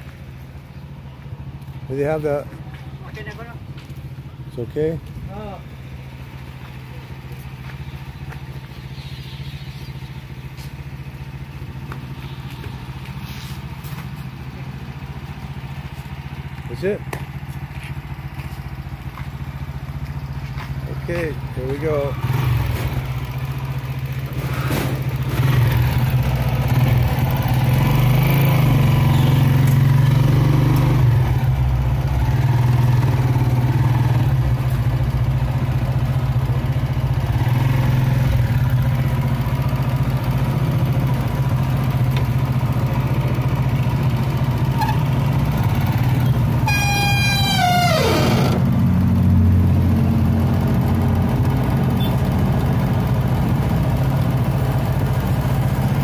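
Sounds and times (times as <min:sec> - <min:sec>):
motorcycle engine pulling away: 0:21.7 - 0:56.0.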